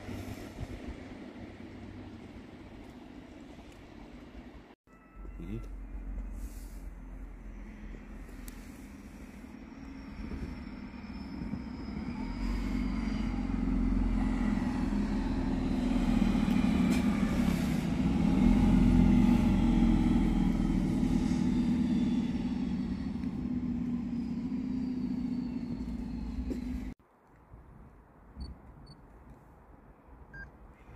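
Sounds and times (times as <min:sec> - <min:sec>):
diesel railcar engine: 0:00.0 - 0:27.0
train wheels on rails: 0:05.2 - 0:27.0.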